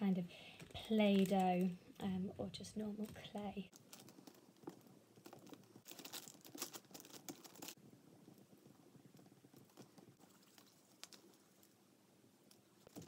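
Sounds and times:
clay crackling between fingers: 0:00.5 - 0:02.0, 0:02.9 - 0:13.0.

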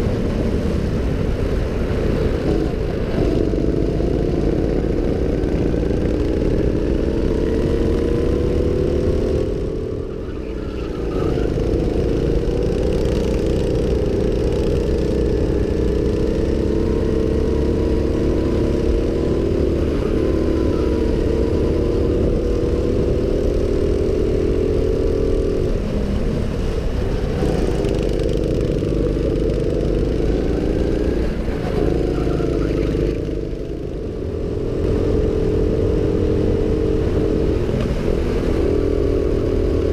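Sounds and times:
go-kart engine at high revs: 0:00.0 - 0:39.9.

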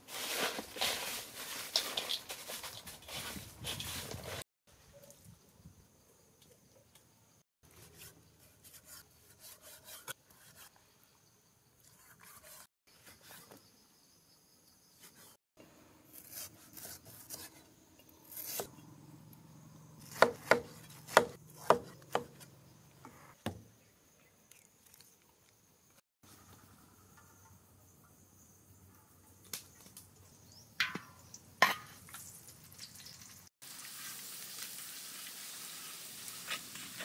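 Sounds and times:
cleaver slicing and scraping: 0:07.7 - 0:10.8, 0:11.9 - 0:13.4, 0:16.1 - 0:17.6, 0:18.2 - 0:18.7
cleaver chopping on wooden board: 0:20.1 - 0:22.4.

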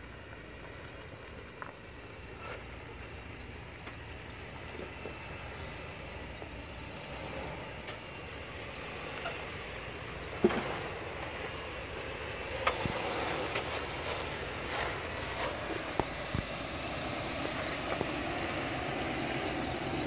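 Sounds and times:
truck engine at low revs: 0:00.0 - 0:20.0.

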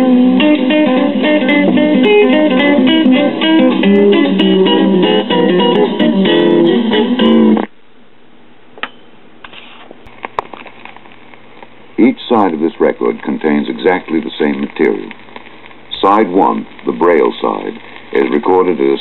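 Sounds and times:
music from record player: 0:00.0 - 0:07.7, 0:12.5 - 0:19.0
faint hiss: 0:07.5 - 0:19.0.

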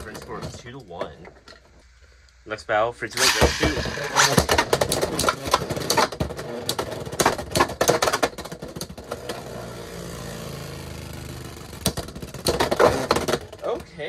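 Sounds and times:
spinning tops whirring: 0:03.2 - 0:05.4.

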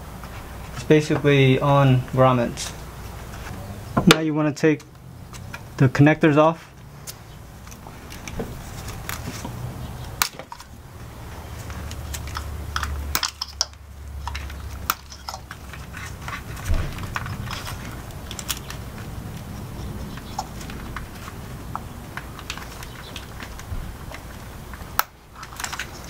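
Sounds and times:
plastic connectors clicking: 0:11.6 - 0:19.5, 0:20.1 - 0:26.0.

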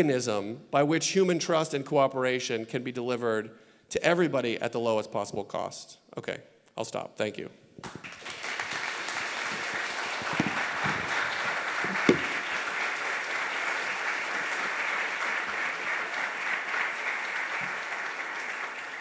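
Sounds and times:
audience applauding: 0:07.8 - 0:19.0.

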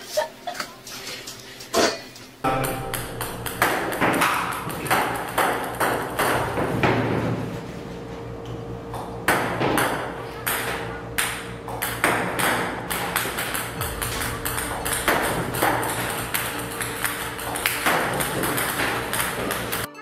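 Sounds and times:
background music: 0:02.4 - 0:04.6, 0:13.8 - 0:20.0
ping-pong balls bouncing on table: 0:02.5 - 0:07.0, 0:09.3 - 0:13.8, 0:14.6 - 0:19.9.

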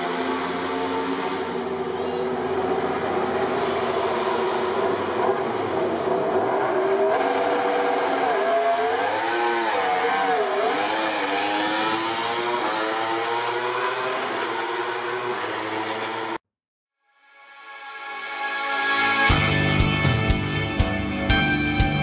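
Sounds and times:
motorcycle engine revving: 0:00.0 - 0:16.4.

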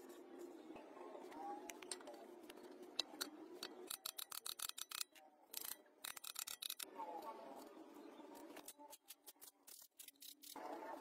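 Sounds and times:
metal engine parts clicking and rubbing: 0:01.8 - 0:06.9, 0:08.4 - 0:10.6.

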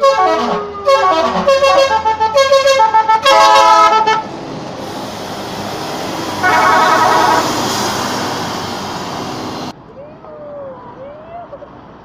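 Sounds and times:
multi-tone bus horn melody: 0:00.0 - 0:04.3, 0:06.4 - 0:07.7
bus passing with rushing noise: 0:00.0 - 0:12.0
horn chord: 0:06.4 - 0:07.5.

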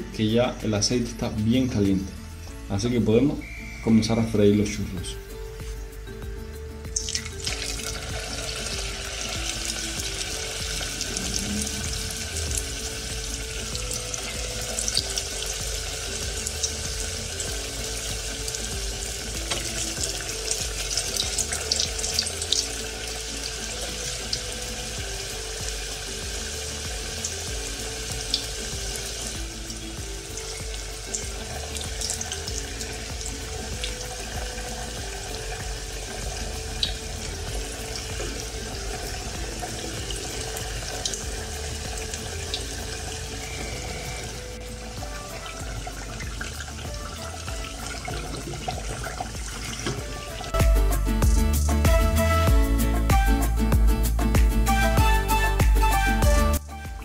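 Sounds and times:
dough sizzling in hot oil: 0:06.9 - 0:50.6.

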